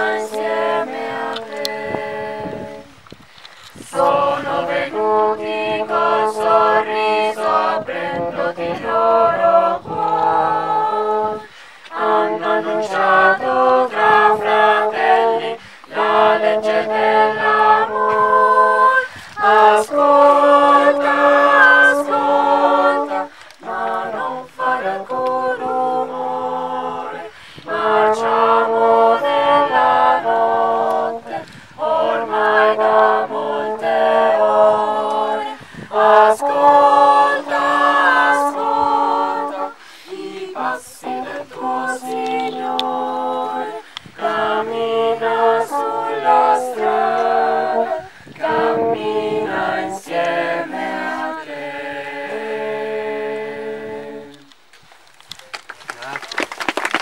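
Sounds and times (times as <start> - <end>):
youth choir singing in parts: 0.0 - 3.0, 3.7 - 54.6.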